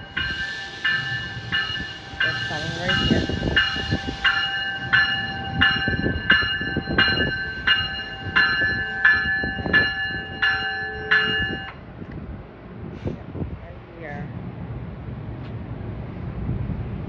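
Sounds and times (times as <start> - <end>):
train warning bell ringing: 0.0 - 11.8
low rumble of train cars: 0.0 - 17.0.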